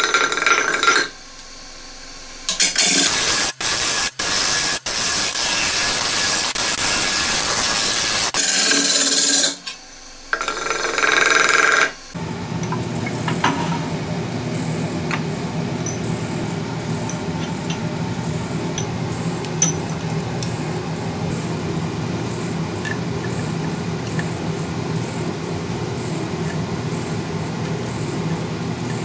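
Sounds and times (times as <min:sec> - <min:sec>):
lathe gouge shaving hiss: 0:02.6 - 0:09.5, 0:21.3 - 0:29.0
lathe machine hum: 0:10.3 - 0:29.0.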